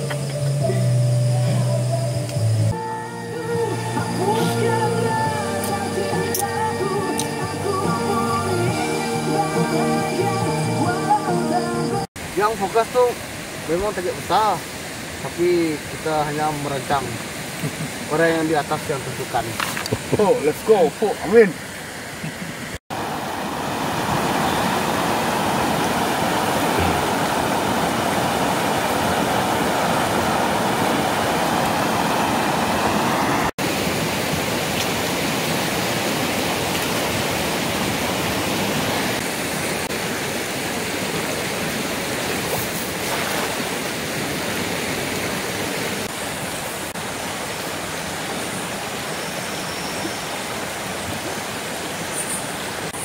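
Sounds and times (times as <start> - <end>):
river rushing over rapids: 2.7 - 53.0.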